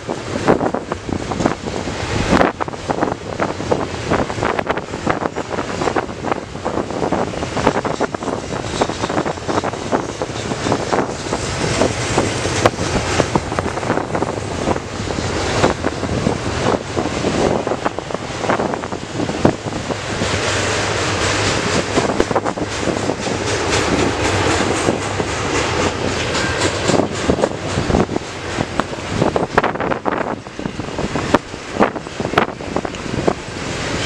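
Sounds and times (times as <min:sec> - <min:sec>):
freight train wheels rolling on rail: 0:00.0 - 0:34.0
train clicks and clanks: 0:00.0 - 0:34.0
wind buffeting microphone: 0:00.0 - 0:34.0.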